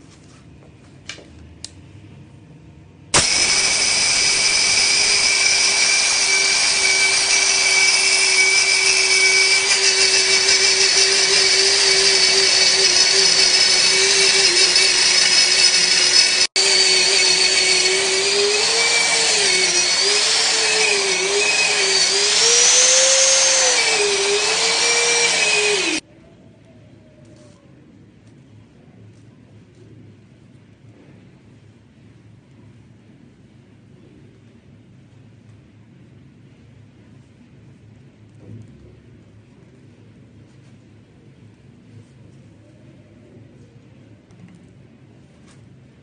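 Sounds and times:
grinder motor whining: 3.2 - 26.0.

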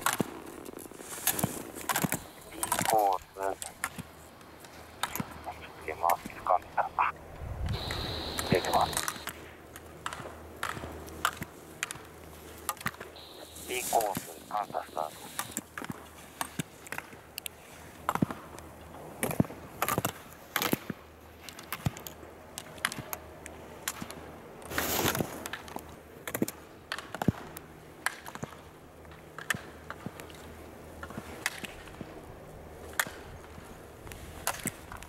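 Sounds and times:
skis scraping on hard snow: 0.0 - 4.1, 24.7 - 25.6.

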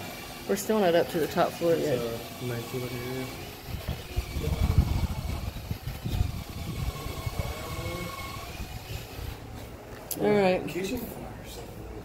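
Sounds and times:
wind buffeting microphone: 3.5 - 9.4.

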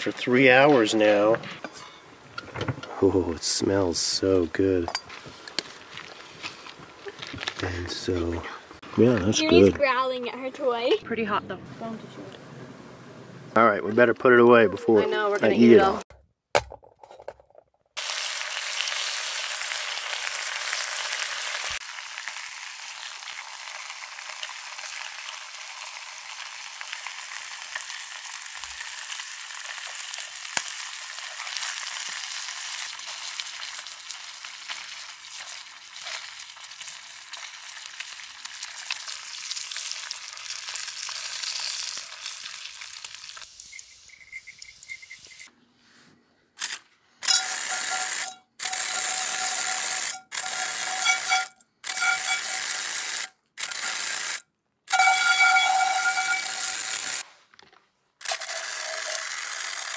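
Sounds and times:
bacon sizzling in a pan: 18.0 - 45.4, 47.3 - 57.2, 58.2 - 59.9.

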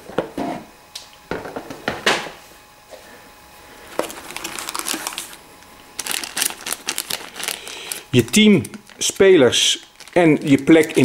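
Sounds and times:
plastic bag crinkling: 3.8 - 11.0.

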